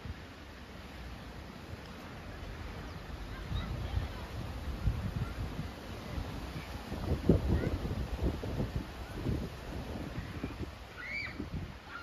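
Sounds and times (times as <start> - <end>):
faint hiss: 0.0 - 12.0
wind buffeting microphone: 2.5 - 12.0.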